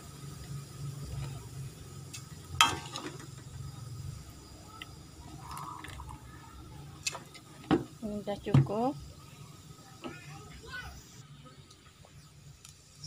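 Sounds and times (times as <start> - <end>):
oil sizzling in a wok: 0.0 - 11.2, 11.9 - 13.0.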